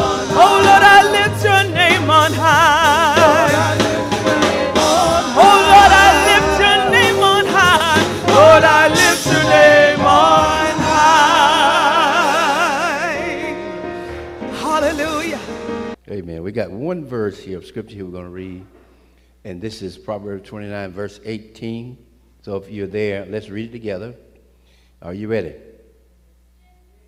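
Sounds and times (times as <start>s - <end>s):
woman singing gospel: 0.0s - 13.6s, 14.5s - 15.5s.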